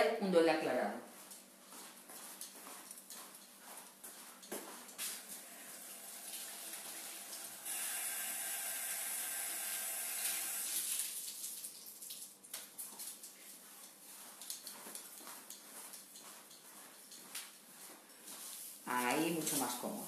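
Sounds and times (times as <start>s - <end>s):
tap water running into basin: 5.3s - 12.7s.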